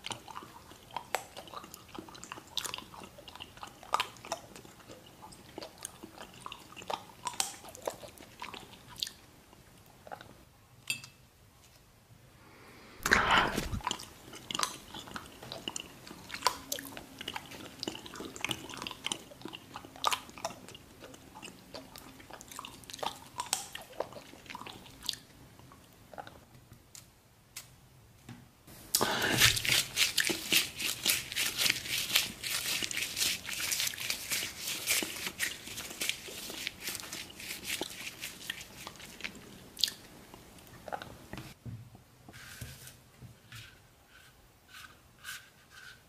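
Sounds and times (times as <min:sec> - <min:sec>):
crunchy chewing: 0:00.0 - 0:09.2, 0:29.0 - 0:41.1
chewing clicks and smacks: 0:00.0 - 0:10.3, 0:13.8 - 0:26.4, 0:37.8 - 0:40.0.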